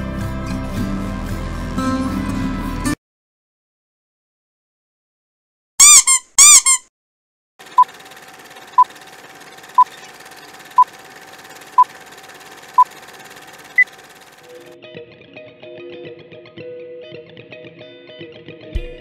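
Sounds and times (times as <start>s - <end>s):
squeak sound effects with echo: 5.8s - 6.9s
crackling projector hiss: 7.6s - 14.6s
steady hum: 7.6s - 14.7s.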